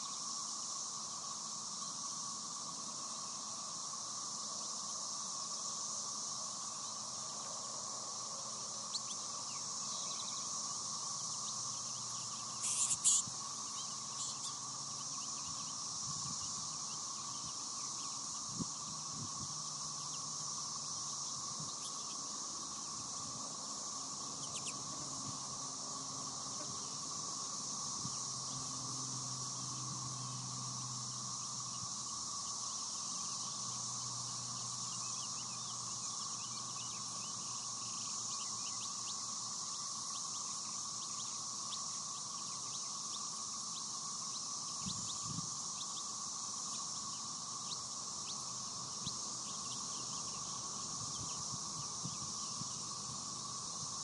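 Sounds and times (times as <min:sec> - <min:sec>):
high-pitched insect drone: 0:00.0 - 0:54.0
bird chirps: 0:11.2 - 0:15.8, 0:24.4 - 0:24.8.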